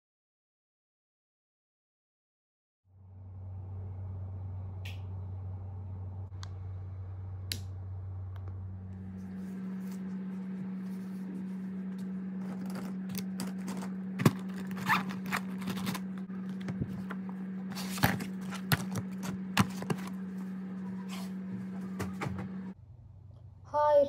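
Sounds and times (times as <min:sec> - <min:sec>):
steady low hum: 0:02.9 - 0:23.9
books knocking and scraping on desk: 0:15.4 - 0:20.2.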